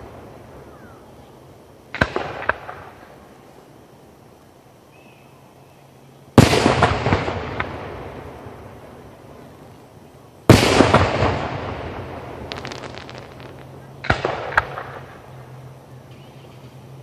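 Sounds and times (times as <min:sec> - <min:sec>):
faint firework crackles: 0:01.8 - 0:03.7, 0:06.4 - 0:15.7
firework shells booming: 0:10.5 - 0:15.3.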